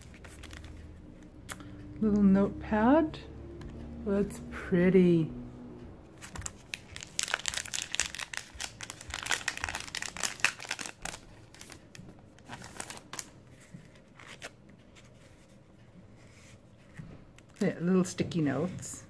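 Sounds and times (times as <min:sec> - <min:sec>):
cellophane crinkling: 0:00.0 - 0:01.0, 0:06.2 - 0:14.6.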